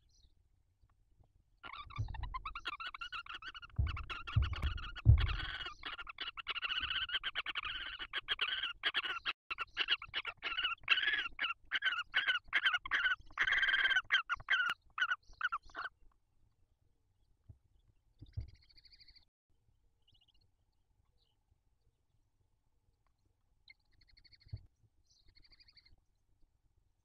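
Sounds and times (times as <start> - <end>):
owls raspy chatter: 1.6 - 16.0
dull low thumps: 1.9 - 2.6, 3.6 - 5.8.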